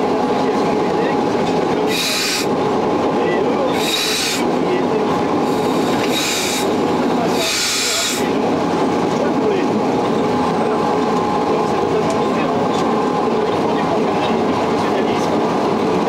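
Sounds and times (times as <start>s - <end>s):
locomotive running rumble: 0.0s - 16.0s
short hissing bursts: 1.9s - 2.5s, 3.8s - 4.4s, 5.5s - 6.7s, 7.3s - 8.2s.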